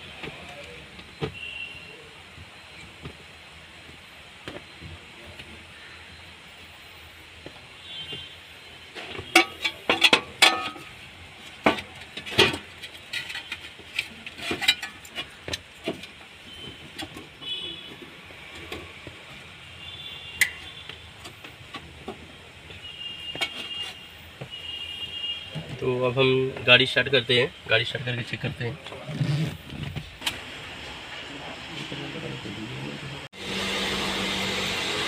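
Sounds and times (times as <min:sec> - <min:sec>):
tools clicking and clinking on metal: 0:09.2 - 0:11.0.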